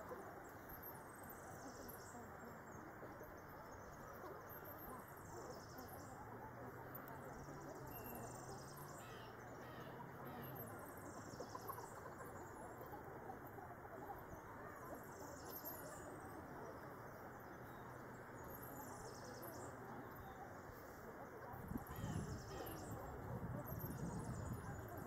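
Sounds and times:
birds chirping: 6.9s - 25.0s.

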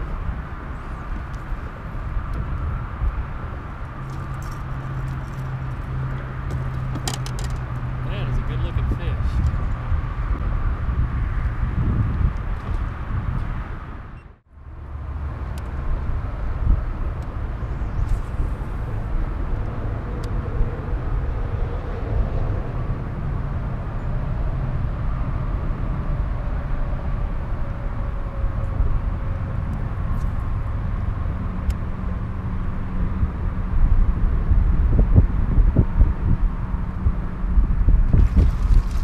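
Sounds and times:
faint engine drone: 0.0s - 39.0s
wind buffeting microphone: 0.0s - 39.0s.

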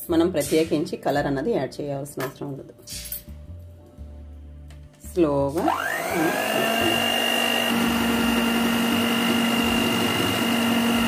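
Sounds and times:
electric hand mixer whining: 5.6s - 11.0s.

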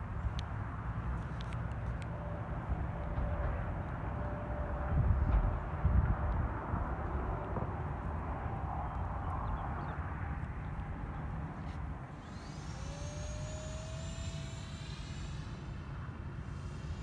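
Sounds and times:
electric ducted fan whine: 10.9s - 17.0s.

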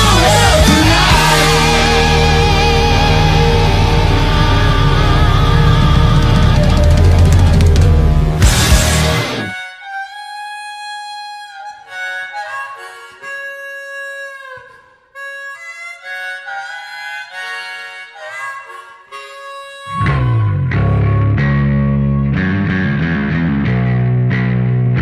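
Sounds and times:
rock band playing: 0.0s - 9.6s, 20.0s - 25.0s
solo harmonica melody: 0.0s - 22.8s.

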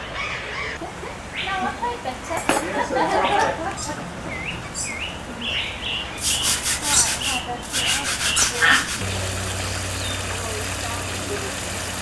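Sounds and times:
parakeets chirping: 4.3s - 11.3s
harsh scratchy rasping: 6.2s - 9.1s
steady low hum: 8.9s - 12.0s.

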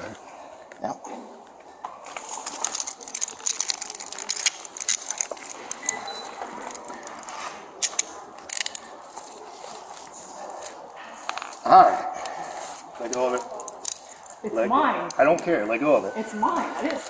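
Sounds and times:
handcuffs clicking and jingling: 2.1s - 14.4s.

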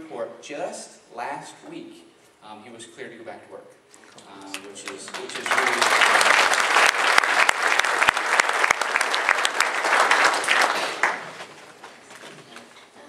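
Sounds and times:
audience applauding: 4.4s - 12.2s.

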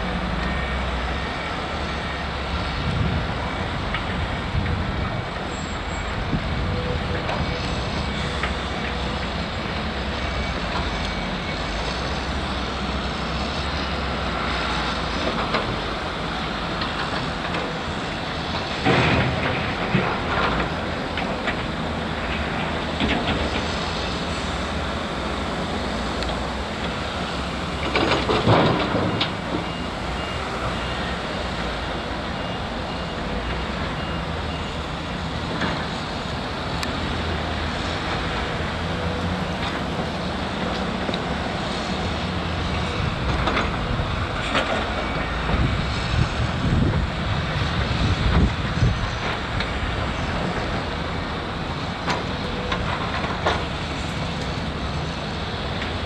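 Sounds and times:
diesel excavator running: 0.0s - 56.0s
reversing alarm beeping: 8.8s - 14.8s, 27.7s - 35.9s.

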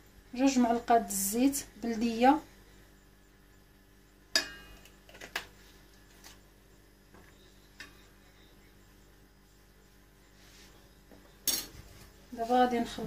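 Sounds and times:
metal spoon tapping metal bowl: 4.3s - 4.8s.

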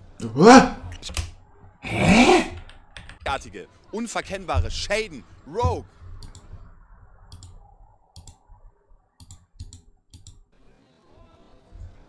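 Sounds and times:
computer keyboard clicking: 2.6s - 3.2s.

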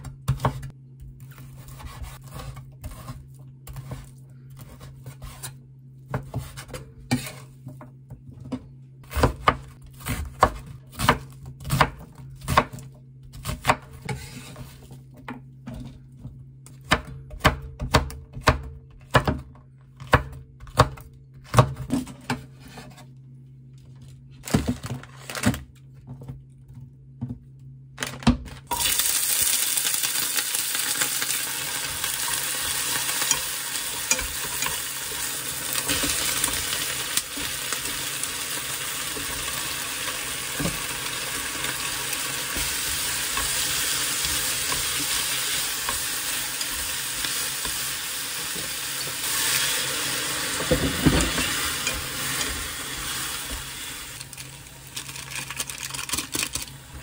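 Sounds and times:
food sizzling in a hot pan: 28.7s - 54.2s.

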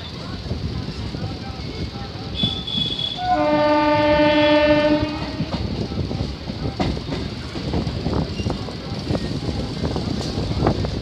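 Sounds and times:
train rumbling on track: 0.0s - 11.0s
train horn blast: 2.4s - 5.6s.

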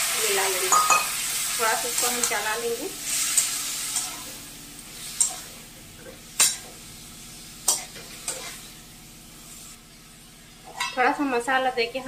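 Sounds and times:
vegetables sizzling: 0.0s - 12.0s.

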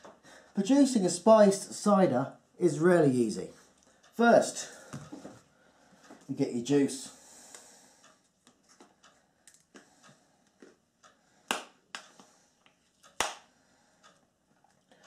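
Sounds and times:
clicks and taps of handled objects: 4.9s - 5.4s, 7.5s - 10.8s.

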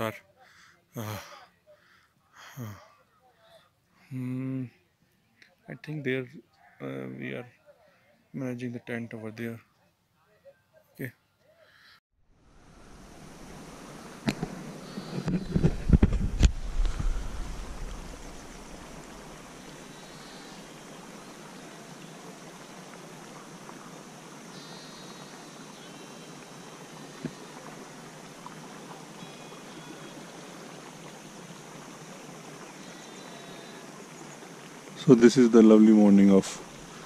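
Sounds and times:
stream rushing over rocks: 12.4s - 37.0s
faint high chirps: 24.4s - 28.0s, 28.8s - 30.8s.

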